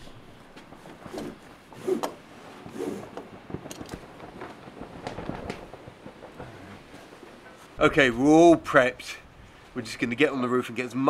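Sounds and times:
rope and clothing rustling: 0:00.0 - 0:08.3.

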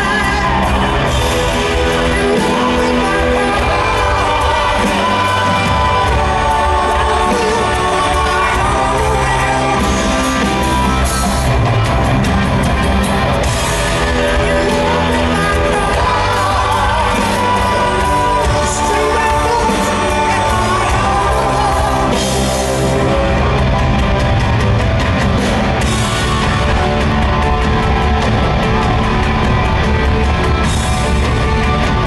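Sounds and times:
person singing: 0:00.0 - 0:24.2
rock band playing loud: 0:00.0 - 0:32.0.

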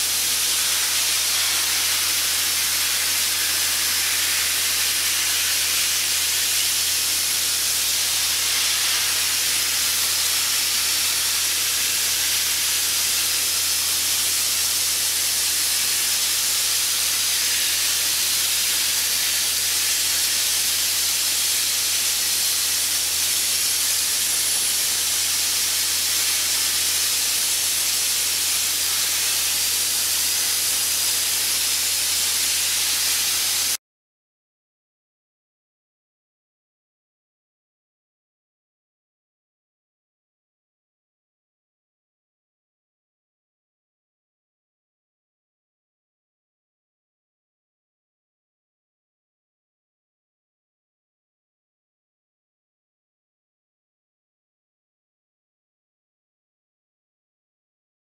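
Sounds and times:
sandblaster hissing: 0:00.0 - 0:33.8.

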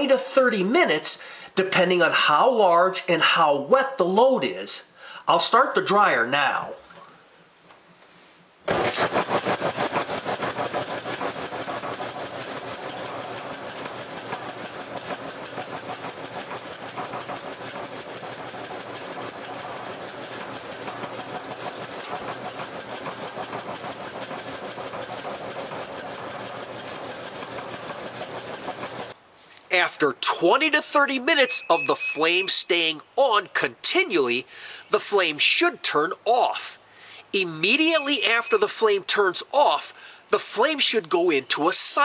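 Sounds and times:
clothes dryer running: 0:08.7 - 0:29.2.

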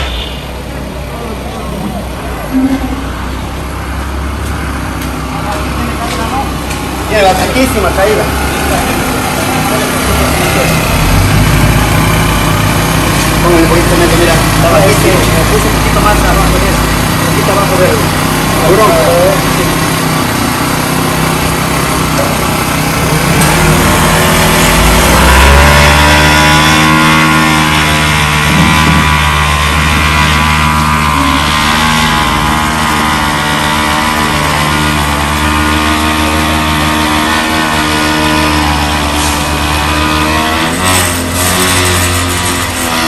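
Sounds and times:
small gasoline engine running: 0:00.0 - 0:43.0.

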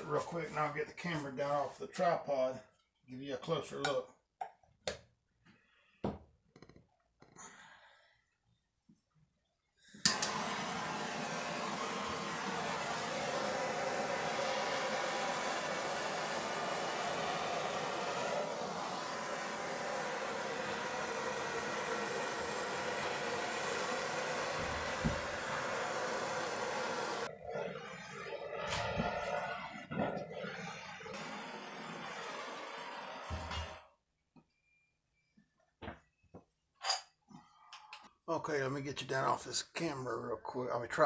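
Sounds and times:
gas torch hissing: 0:09.9 - 0:33.9
gas torch lighting click: 0:10.0 - 0:10.6.

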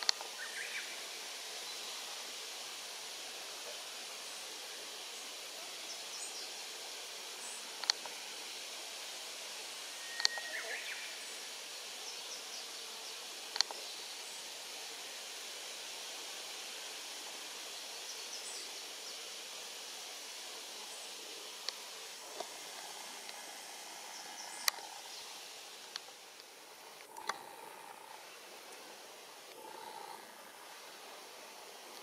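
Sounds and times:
outdoor background hiss: 0:00.0 - 0:32.0
faint high chirps: 0:09.9 - 0:11.2.

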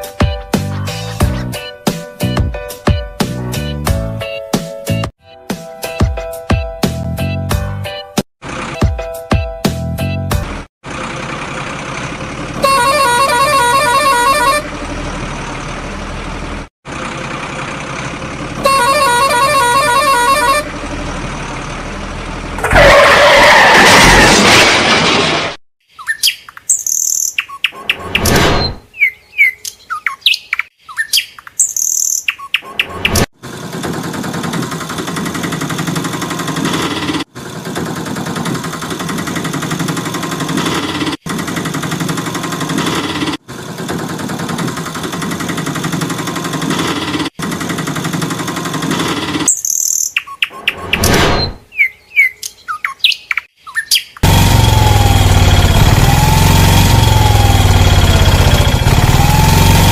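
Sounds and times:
birds chirping: 0:25.9 - 0:33.3, 0:49.5 - 0:51.0, 0:51.6 - 0:54.2.

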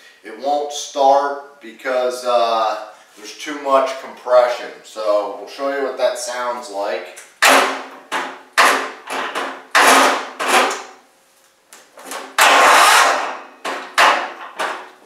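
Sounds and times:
electric starter knocking: 0:12.3 - 0:14.8.

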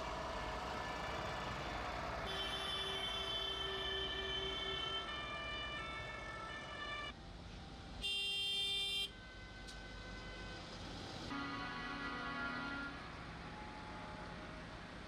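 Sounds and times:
low traffic rumble: 0:00.0 - 0:15.0
tractor horns sounding: 0:00.2 - 0:06.0, 0:11.3 - 0:13.4.

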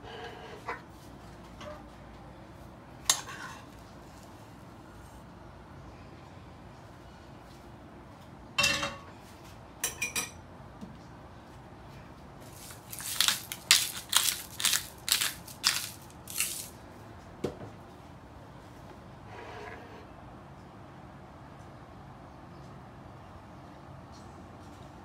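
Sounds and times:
pepper grinder grinding: 0:12.5 - 0:16.8.

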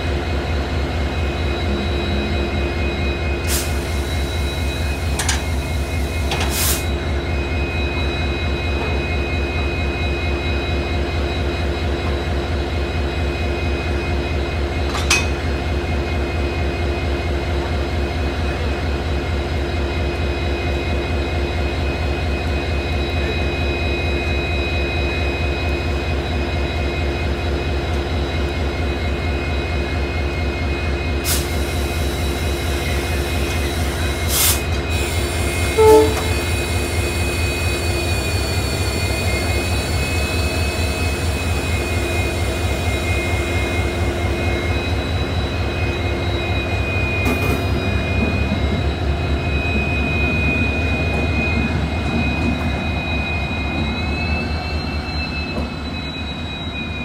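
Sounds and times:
locomotive diesel engine idling: 0:00.0 - 0:09.9
steady whine: 0:00.0 - 0:57.0
locomotive horn toot: 0:34.3 - 0:37.8.

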